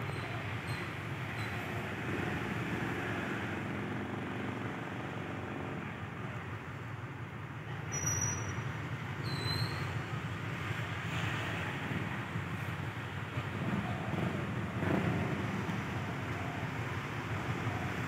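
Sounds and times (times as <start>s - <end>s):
diesel locomotive engine rumble: 0.0s - 18.0s.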